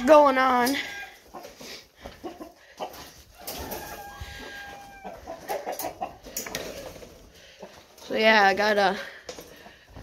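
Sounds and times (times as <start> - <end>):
chickens clucking: 0.4 - 10.0
drawn-out chicken call: 0.8 - 7.8.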